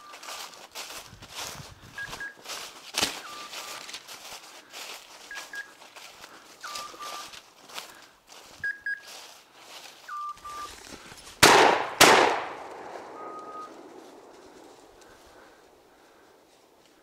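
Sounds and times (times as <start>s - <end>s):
short electronic beeps: 2.0s - 2.5s, 3.2s - 3.9s, 5.2s - 5.8s, 6.6s - 7.4s, 8.6s - 9.1s, 10.0s - 10.8s, 13.0s - 13.8s
shotgun shots echoing: 11.4s - 14.8s.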